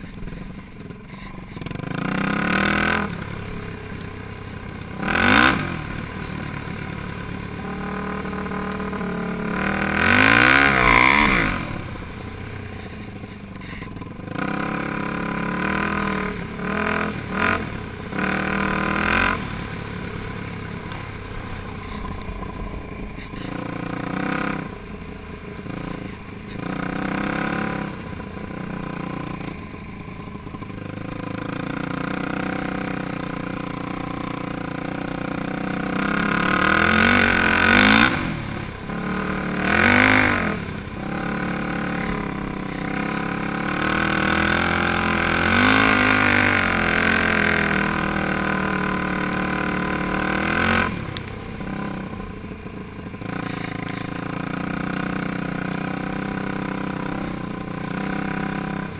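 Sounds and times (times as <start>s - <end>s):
quad engine revving: 1.1s - 58.9s.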